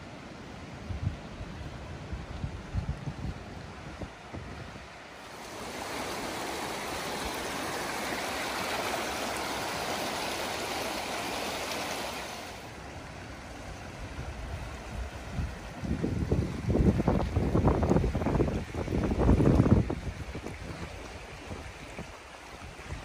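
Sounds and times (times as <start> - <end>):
wind buffeting microphone: 0.8 - 8.8, 13.7 - 23.0
river rushing over rocks: 3.6 - 23.0.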